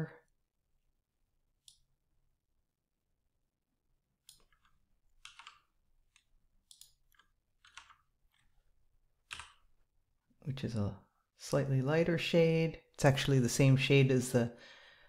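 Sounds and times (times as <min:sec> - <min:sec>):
computer keys clicking: 0:04.2 - 0:08.6, 0:09.2 - 0:09.7.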